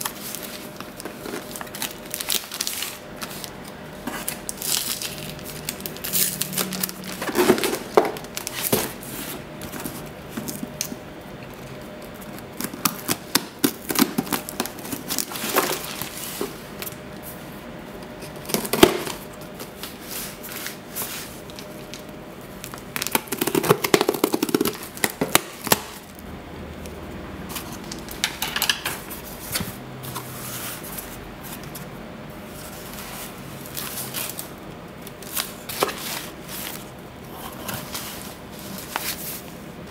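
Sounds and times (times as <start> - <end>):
tape and cardboard flaps rustling: 0.0 - 11.0, 11.6 - 17.0, 18.0 - 26.1, 32.5 - 36.9
plastic wrap crinkling: 0.0 - 17.2, 18.0 - 26.2, 27.5 - 39.9.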